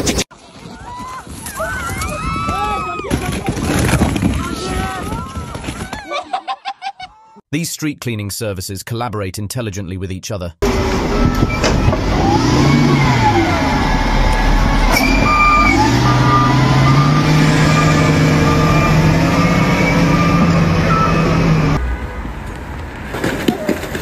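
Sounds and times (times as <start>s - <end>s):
diesel engine revving: 10.6s - 21.9s.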